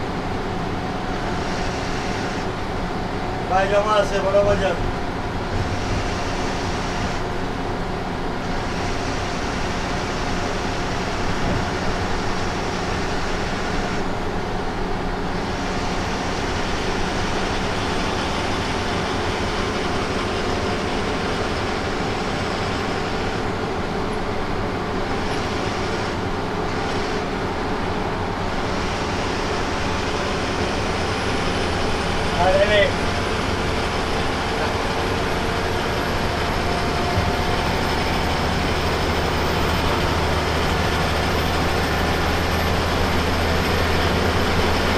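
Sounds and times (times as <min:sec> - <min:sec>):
bus engine hum and road drone: 0:00.0 - 0:44.9.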